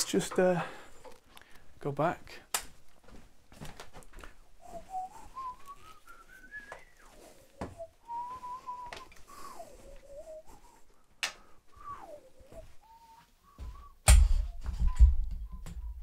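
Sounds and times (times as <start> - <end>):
person whistling a slow tune: 4.6 - 10.9, 11.7 - 16.0.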